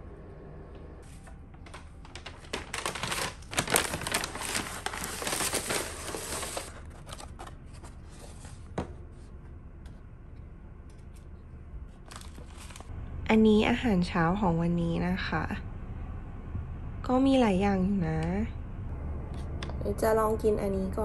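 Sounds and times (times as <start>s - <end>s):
paper bag crinkling: 1.1s - 8.4s, 12.0s - 12.9s.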